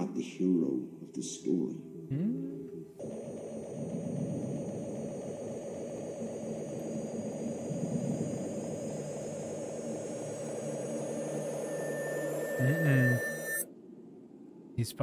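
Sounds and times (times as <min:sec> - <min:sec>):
thin high tones rising: 0:03.0 - 0:13.7.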